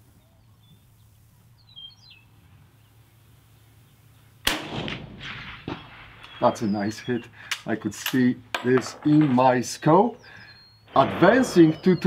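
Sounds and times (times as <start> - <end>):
suppressed rifle shot with echo: 4.4 - 6.4.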